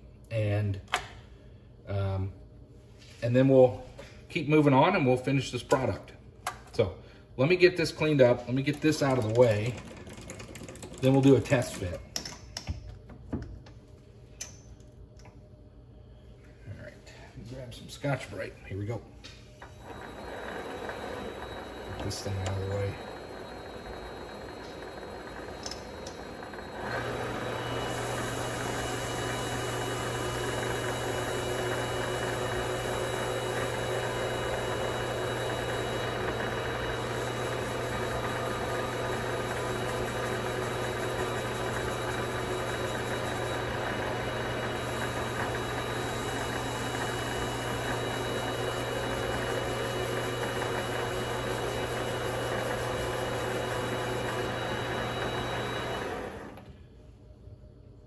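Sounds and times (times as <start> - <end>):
pad polishing spinning metal: 19.6 - 56.4
lathe running with whine: 19.6 - 56.7.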